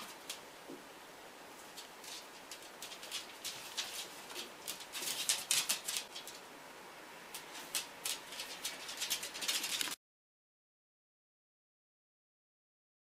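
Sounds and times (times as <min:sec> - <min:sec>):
dog claws clicking on floor: 0:01.7 - 0:06.4, 0:07.3 - 0:10.0.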